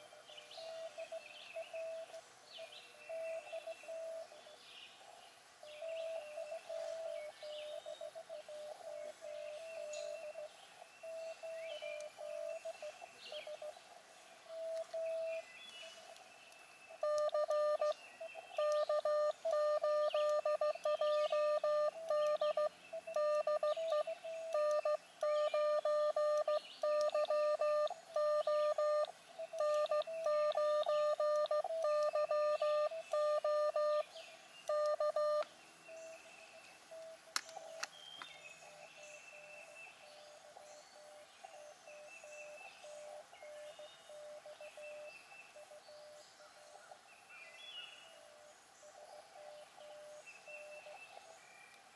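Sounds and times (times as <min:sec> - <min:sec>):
receiver hiss: 0:00.0 - 0:04.4, 0:05.4 - 0:39.4
birds chirping: 0:00.0 - 0:51.9
morse code beeps: 0:00.6 - 0:02.1, 0:03.1 - 0:04.2, 0:09.3 - 0:13.7, 0:14.5 - 0:15.4, 0:17.0 - 0:34.1, 0:34.7 - 0:36.1
faint morse tone: 0:14.5 - 0:15.4, 0:16.9 - 0:37.2.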